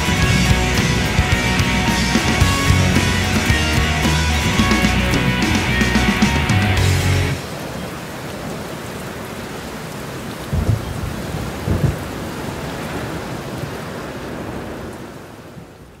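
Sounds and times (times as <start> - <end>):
steady rain: 0.0 - 16.0
low thunder rumbles: 10.4 - 15.7.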